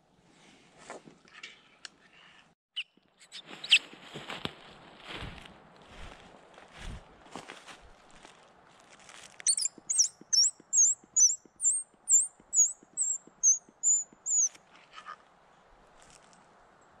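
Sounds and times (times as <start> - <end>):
small animal chirping: 2.8 - 3.8, 9.4 - 14.6.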